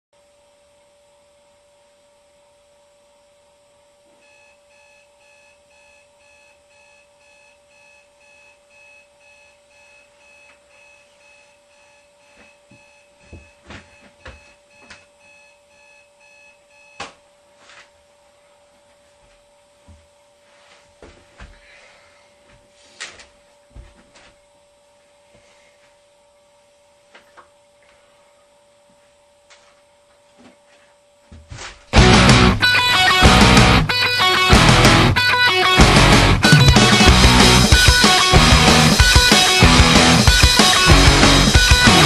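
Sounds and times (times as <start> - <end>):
alarm clock beeping: 4.2 - 17.0, 32.0 - 42.0.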